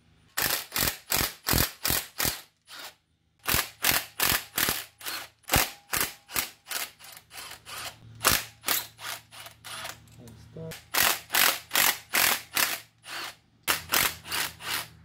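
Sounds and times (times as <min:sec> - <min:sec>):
ratchet wrench clicking: 0:10.8 - 0:14.9.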